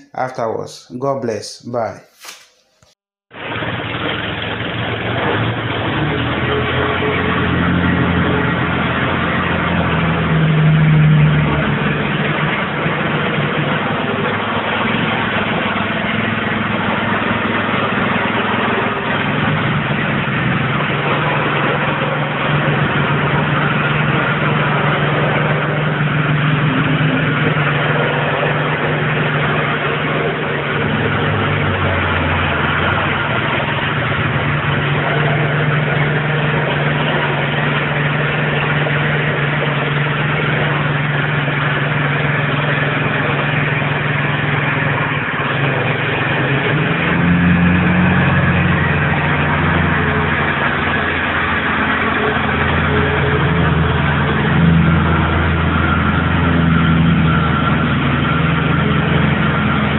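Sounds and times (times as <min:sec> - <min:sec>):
plate compactor engine running: 0:03.3 - 0:59.9.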